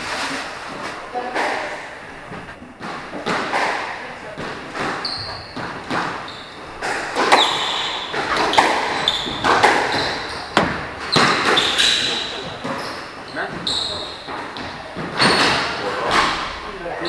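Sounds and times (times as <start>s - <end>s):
squash ball striking rackets and walls: 2.8s - 16.7s
shoes squeaking on wooden floor: 4.4s - 16.2s.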